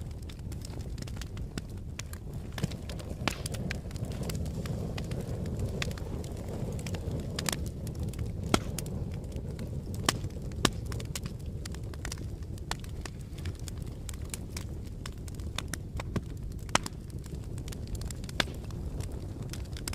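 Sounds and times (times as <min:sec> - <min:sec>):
fire crackling and popping: 0:00.0 - 0:19.9
low rumble of flames: 0:00.0 - 0:19.9.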